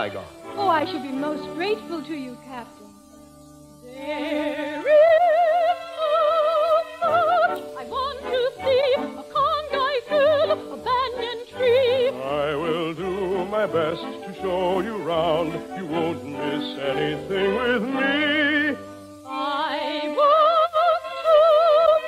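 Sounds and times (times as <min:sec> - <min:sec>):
orchestra playing operetta music: 0:06.8 - 0:19.8.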